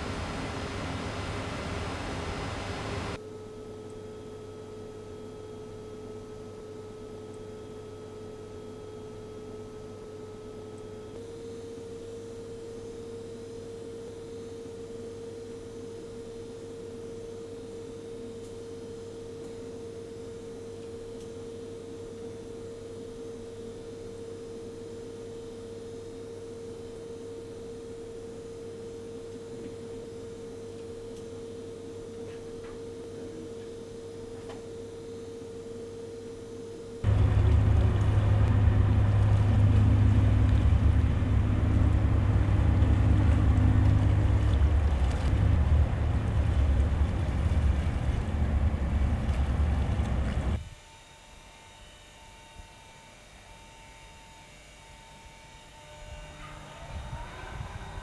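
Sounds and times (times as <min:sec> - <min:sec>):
low hum: 0:00.0 - 0:03.2, 0:21.0 - 0:50.7
wind rumbling on microphone: 0:37.1 - 0:50.6.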